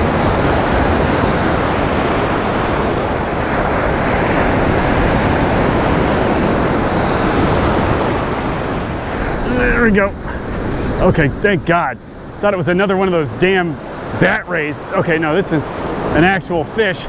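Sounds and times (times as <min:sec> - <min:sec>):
ocean waves breaking on shore: 0:00.0 - 0:17.0.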